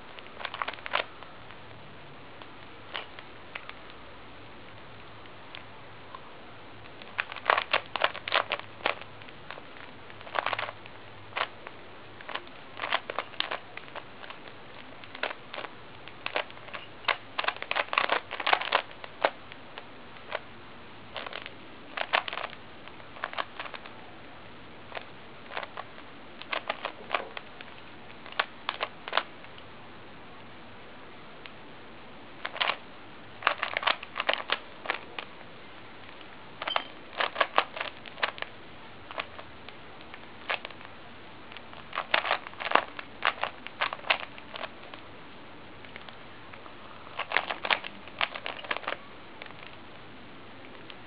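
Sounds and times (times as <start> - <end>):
plastic cube clicking: 7.0 - 10.8, 12.2 - 14.4, 15.0 - 19.4, 32.4 - 32.8, 33.4 - 35.3, 36.6 - 38.5, 41.5 - 44.7, 47.2 - 49.7.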